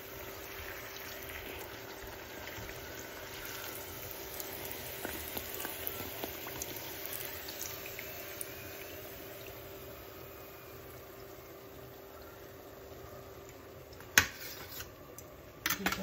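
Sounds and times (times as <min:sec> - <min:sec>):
oil popping and crackling: 0:00.0 - 0:09.9
oil sizzling: 0:00.0 - 0:16.0.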